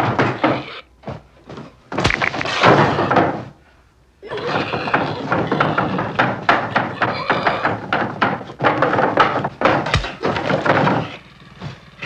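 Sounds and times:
scraping clattering noise: 0:04.5 - 0:12.0.

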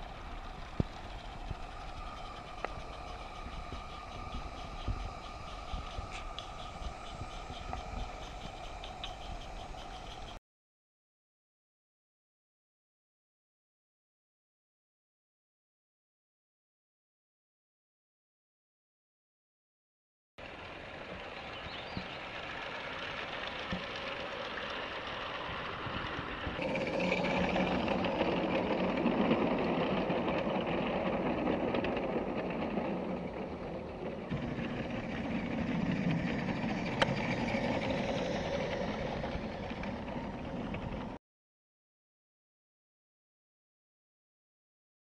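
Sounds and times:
steam locomotive chuffing and hissing: 0:00.0 - 0:10.4, 0:20.4 - 0:41.2.

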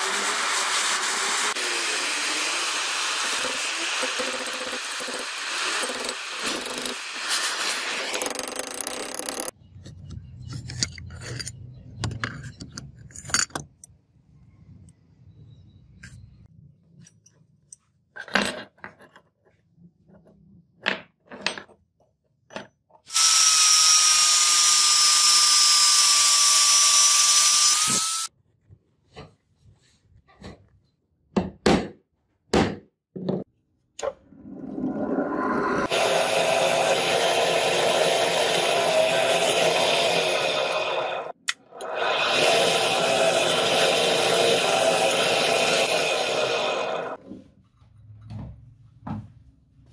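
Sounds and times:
drill press drilling steel: 0:00.0 - 0:09.5, 0:23.1 - 0:28.3, 0:35.9 - 0:47.2
metal parts clinking against vise: 0:10.5 - 0:14.0.

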